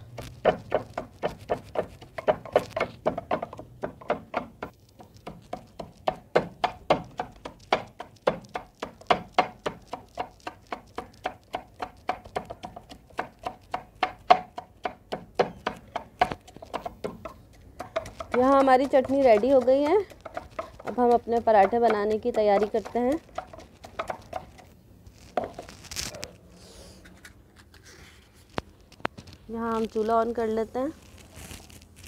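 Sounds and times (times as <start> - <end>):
wooden pestle pounding in a mortar: 0.2 - 24.8.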